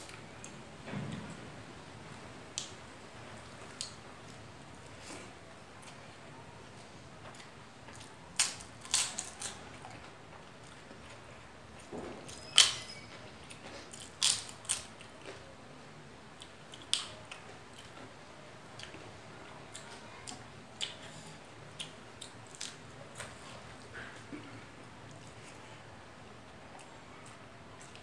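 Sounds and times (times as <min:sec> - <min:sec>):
crunching potato chip: 0:08.4 - 0:09.6, 0:13.9 - 0:14.9.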